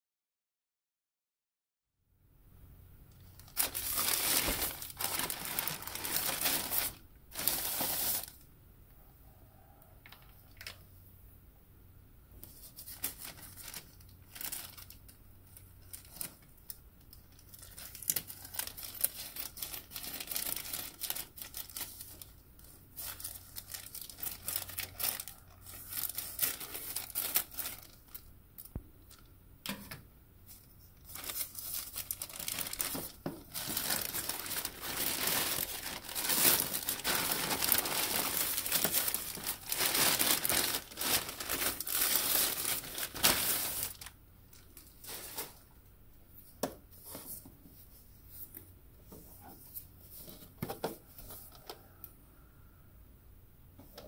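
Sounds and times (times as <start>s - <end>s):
plastic bag crinkling: 3.2s - 8.4s, 12.6s - 29.2s, 31.0s - 45.7s
plastic tearing and rustling: 3.3s - 8.4s, 12.4s - 28.3s, 31.0s - 45.7s.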